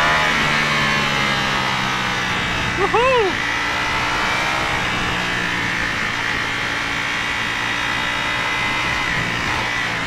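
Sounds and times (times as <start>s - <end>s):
motorcycle engine cruising: 0.0s - 10.0s
road noise: 0.0s - 10.0s.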